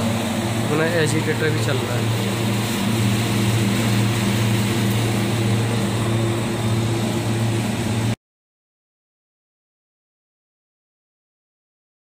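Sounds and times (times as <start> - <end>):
steady machine hum: 0.0 - 8.2.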